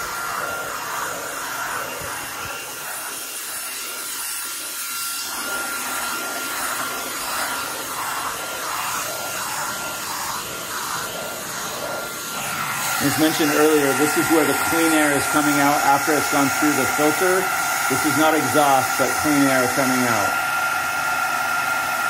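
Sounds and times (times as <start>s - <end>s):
vacuum brush on carpet: 0.0s - 22.0s
vacuum cleaner motor whine: 0.0s - 22.0s.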